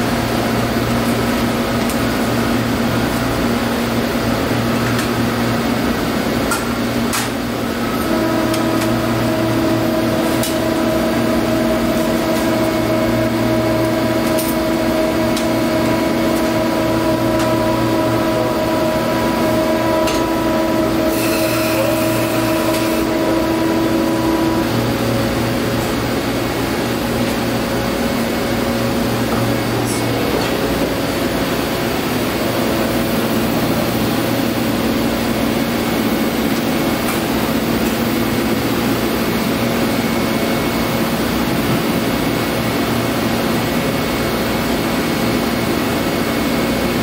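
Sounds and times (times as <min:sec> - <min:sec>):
air handling hum: 0:04.4 - 0:42.3
steady whine: 0:05.7 - 0:42.6.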